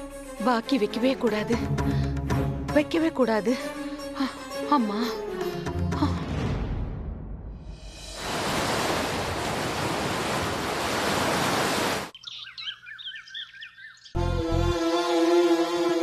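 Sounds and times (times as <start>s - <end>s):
ocean surf rushing: 8.1s - 12.1s
bird chirping: 12.1s - 14.2s.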